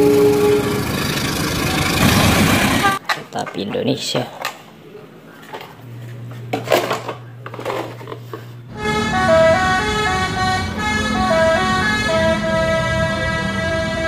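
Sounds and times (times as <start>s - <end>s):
bus musical horn melody: 0.0s - 2.0s, 8.7s - 14.0s.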